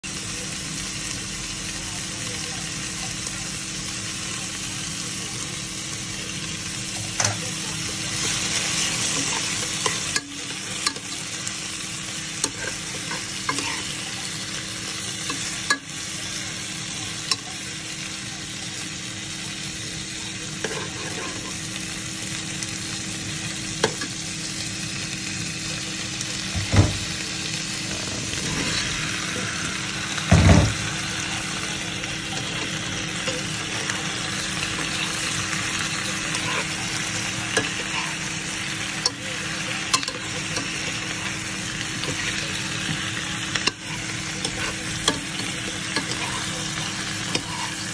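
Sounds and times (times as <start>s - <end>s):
meat and onion sizzling: 0.0s - 47.9s
metal spoon scraping a pan: 7.0s - 17.6s, 20.1s - 22.4s, 27.9s - 29.6s, 32.2s - 47.9s.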